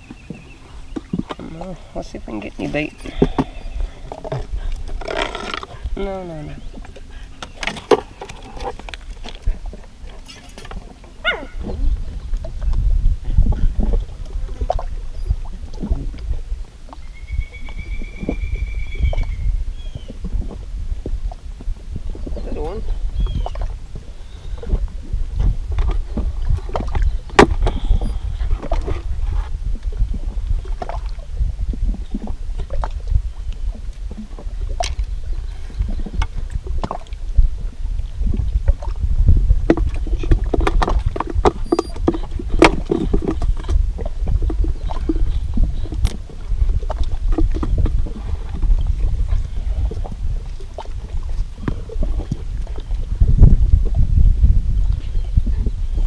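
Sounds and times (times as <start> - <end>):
fishing gear clicks and knocks: 0.0 - 6.0, 6.8 - 11.2, 39.7 - 49.4
wind buffeting microphone: 0.0 - 56.0.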